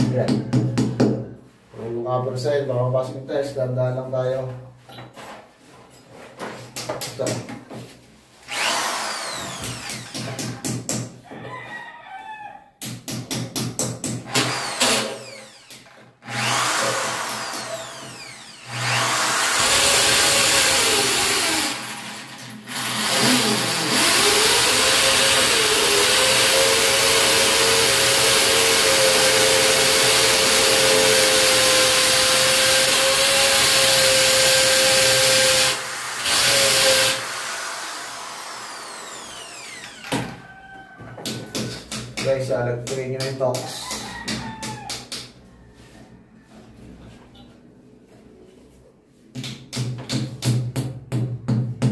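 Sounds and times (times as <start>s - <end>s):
electric drill boring into tile: 8.5s - 10.3s, 14.3s - 40.2s.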